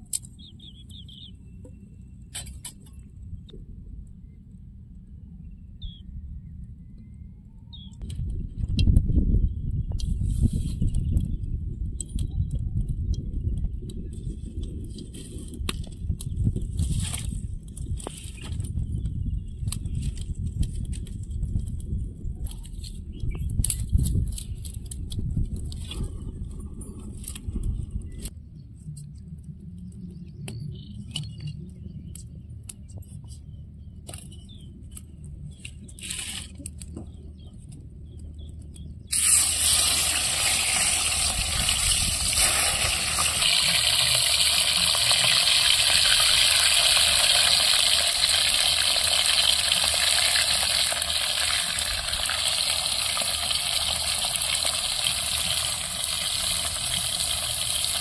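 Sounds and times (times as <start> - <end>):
dry twigs crackling: 39.1 - 58.0
fish frying in hot oil: 39.1 - 58.0.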